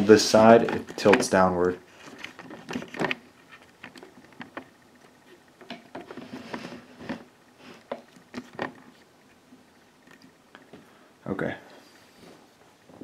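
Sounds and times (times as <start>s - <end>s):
microphone handling clicks and rustles: 0.0s - 9.4s.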